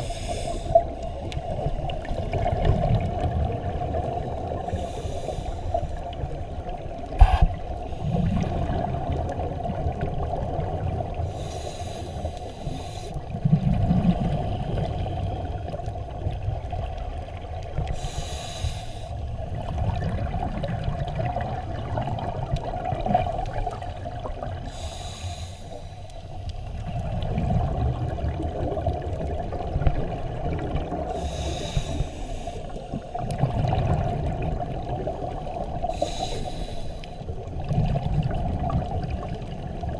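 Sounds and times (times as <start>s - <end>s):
regulator inhale hiss: 0.0s - 1.8s, 4.6s - 6.1s, 7.1s - 8.4s, 11.2s - 13.3s, 17.8s - 19.4s, 24.5s - 26.4s, 31.1s - 33.2s, 35.8s - 37.3s
gurgle of exhaled bubbles: 0.6s - 4.8s, 6.0s - 11.5s, 13.2s - 18.1s, 19.3s - 24.7s, 26.6s - 31.4s, 32.8s - 36.2s, 37.3s - 39.9s.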